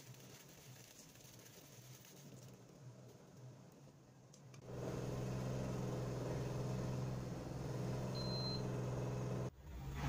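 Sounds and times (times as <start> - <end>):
cooktop hum: 1.8 - 9.5.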